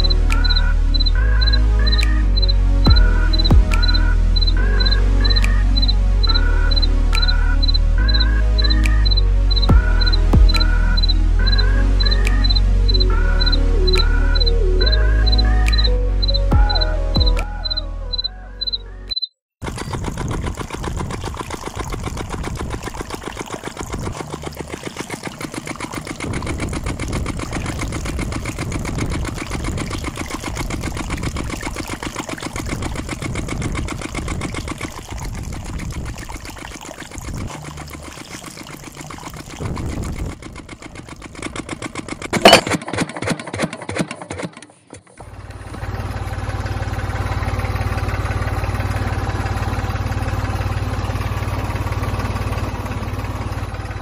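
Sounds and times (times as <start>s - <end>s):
sharp click: 0.0s - 19.3s, 39.8s - 45.2s
small motor rattling buzz: 19.6s - 42.5s.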